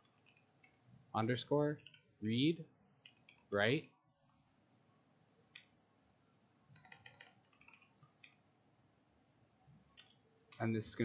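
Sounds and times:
computer keyboard typing: 0.0s - 0.8s, 1.7s - 2.1s, 3.0s - 3.9s, 5.5s - 5.8s, 6.7s - 8.5s, 10.0s - 10.8s.

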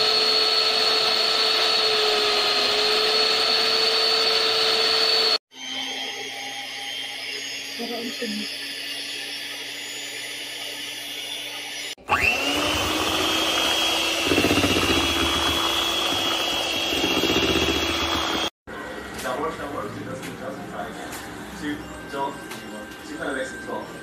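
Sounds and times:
electric hand mixer whirring: 0.0s - 18.6s
beaters churning batter: 12.0s - 18.5s.

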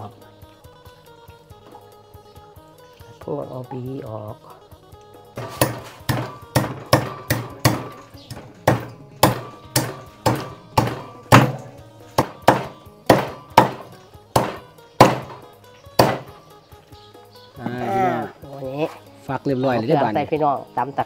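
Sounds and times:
knife chopping on chopping block: 5.4s - 15.4s, 16.0s - 16.4s.

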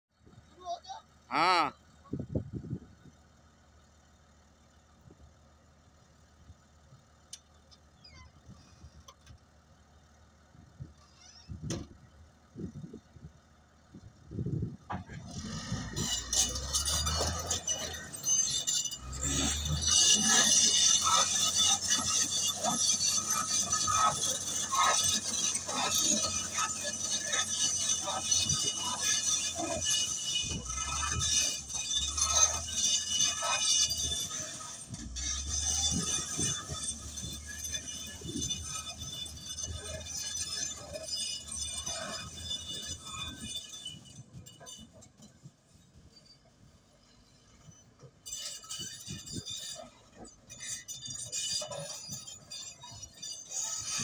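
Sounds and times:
low diesel engine drone: 0.2s - 48.2s
steel tracks clanking and squeaking: 10.9s - 13.1s, 14.4s - 54.0s.

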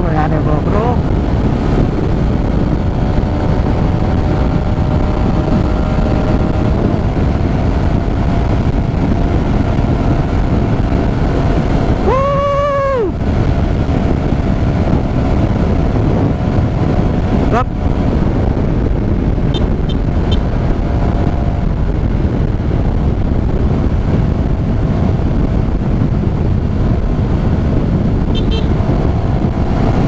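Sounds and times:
motorcycle engine running: 0.0s - 30.0s
wind and road noise: 0.0s - 30.0s
vehicle horn: 19.5s - 20.5s, 28.3s - 28.8s.

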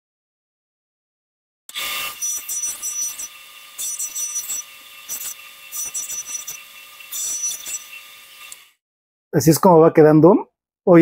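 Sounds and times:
disc rasping on wood: 1.7s - 8.7s
sander motor hum: 1.7s - 8.8s.

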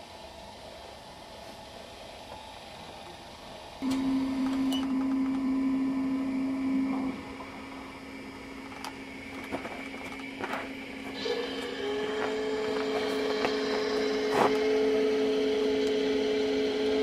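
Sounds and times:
model train motor whining: 0.0s - 17.0s
wheels clicking on track: 7.2s - 17.0s.

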